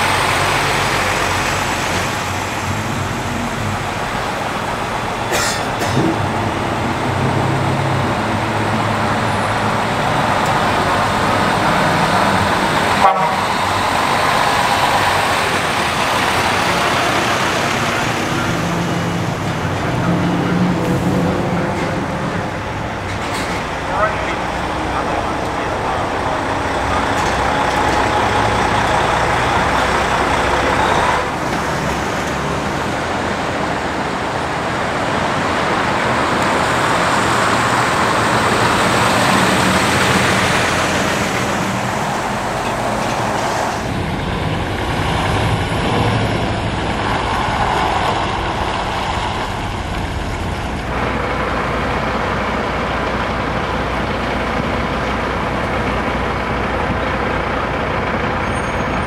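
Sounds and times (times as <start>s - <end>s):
diesel trucks driving past: 0.0s - 59.0s.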